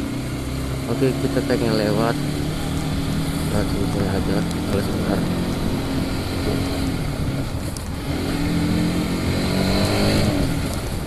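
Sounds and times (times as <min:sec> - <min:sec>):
motorcycle engine running: 0:00.0 - 0:11.0
wind on microphone: 0:02.4 - 0:11.0.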